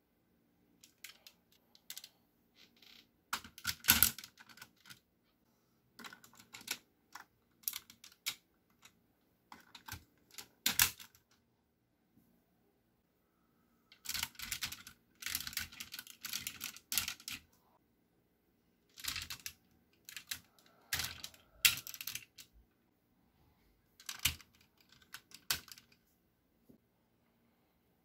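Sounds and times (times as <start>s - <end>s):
plastic toy parts clicking and rattling: 0.8s - 5.0s, 6.0s - 11.4s, 13.9s - 17.5s, 18.9s - 22.5s, 24.0s - 26.0s.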